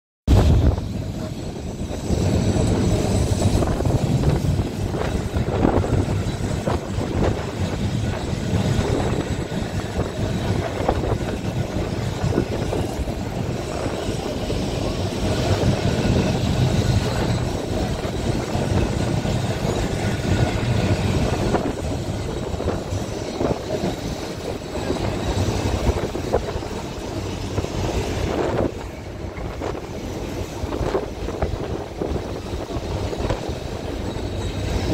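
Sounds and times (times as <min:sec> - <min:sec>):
tram wheels rumbling on track: 0:00.3 - 0:34.9
wind rushing: 0:00.3 - 0:34.9.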